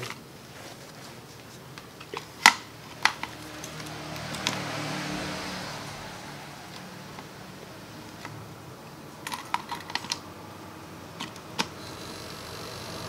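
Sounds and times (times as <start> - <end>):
refrigerator compressor humming: 10.4 - 13.0.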